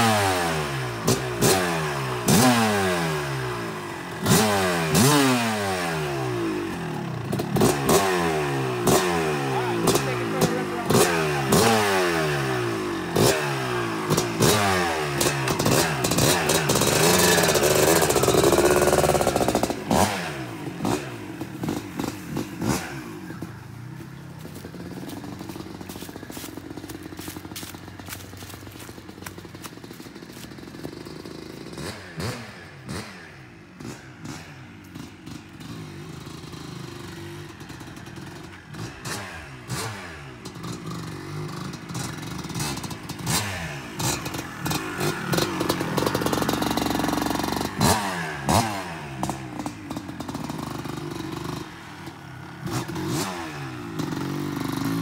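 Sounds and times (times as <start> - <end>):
dirt bike engine revving: 0.0 - 55.0
clatter: 15.2 - 20.1, 33.8 - 51.7.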